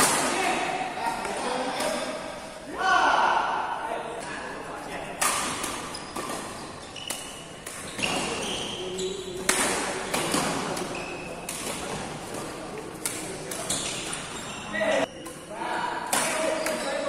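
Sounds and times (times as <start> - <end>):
rackets striking shuttlecock: 5.2 - 8.5, 9.4 - 14.3
shoes squeaking on court floor: 5.6 - 15.2.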